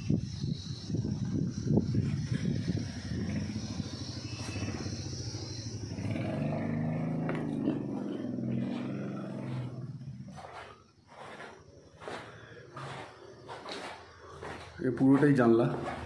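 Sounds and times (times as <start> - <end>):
vehicle engine running: 1.0 - 11.4.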